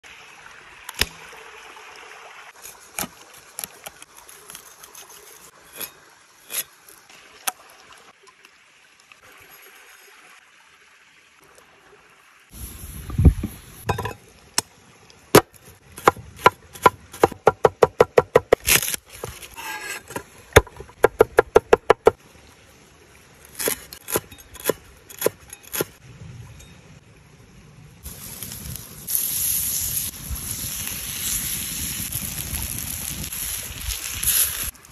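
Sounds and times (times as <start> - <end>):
faint hiss: 12.5 - 15.2, 27.7 - 34.9
knife chopping on wooden board: 16.0 - 18.8.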